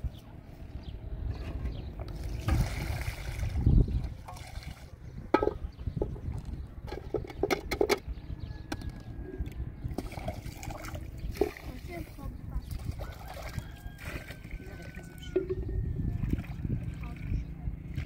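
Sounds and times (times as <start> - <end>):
water sloshing: 1.5 - 7.5, 9.8 - 18.0.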